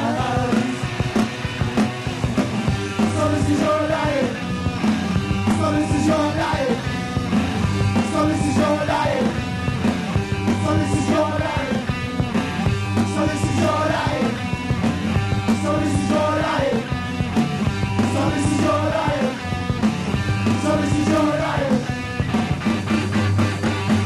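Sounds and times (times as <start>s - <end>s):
man singing into a microphone: 0.0s - 0.9s, 3.1s - 4.4s, 5.5s - 6.8s, 8.0s - 9.3s, 10.6s - 11.8s, 13.0s - 14.4s, 15.6s - 16.8s, 18.0s - 19.3s, 20.6s - 21.9s
drums: 0.0s - 24.0s
electric guitar: 0.0s - 24.0s.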